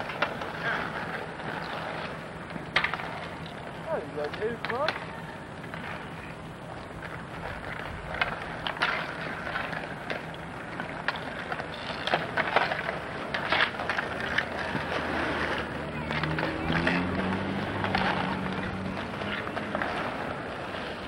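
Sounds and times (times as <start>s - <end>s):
hockey sticks clacking: 0.0s - 2.1s, 2.7s - 3.6s, 4.2s - 5.1s, 8.2s - 20.4s
skate wheels rolling on asphalt: 0.0s - 21.0s.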